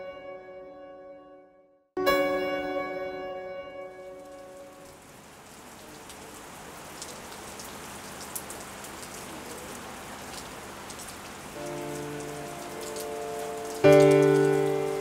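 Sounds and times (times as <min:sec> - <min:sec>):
sustained music tones: 0:00.0 - 0:05.2, 0:11.6 - 0:15.0
steady rain falling: 0:02.1 - 0:15.0
water drips: 0:04.1 - 0:15.0.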